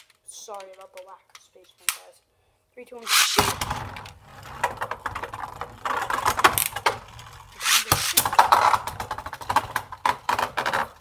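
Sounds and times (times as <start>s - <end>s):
spinning tops clashing: 3.1s - 3.5s, 7.6s - 8.2s.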